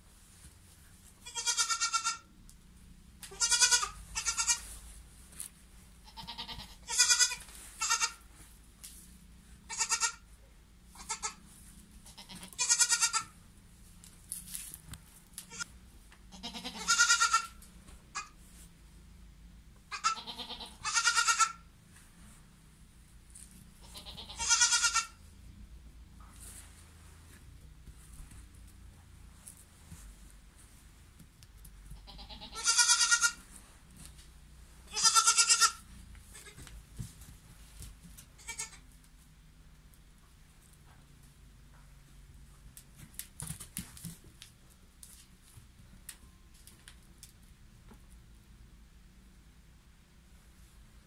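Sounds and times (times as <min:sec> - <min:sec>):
goat kid bleating: 0:01.2 - 0:02.3, 0:03.2 - 0:04.7, 0:06.0 - 0:08.3, 0:09.6 - 0:10.3, 0:10.9 - 0:13.4, 0:15.4 - 0:15.7, 0:16.3 - 0:18.4, 0:19.9 - 0:21.7, 0:23.8 - 0:25.2, 0:31.9 - 0:33.5, 0:34.9 - 0:36.7, 0:38.4 - 0:38.9.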